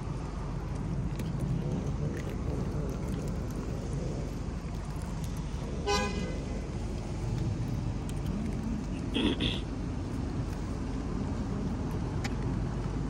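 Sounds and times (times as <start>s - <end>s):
low rumble of traffic: 0.0s - 13.0s
car horn toot: 5.9s - 6.3s.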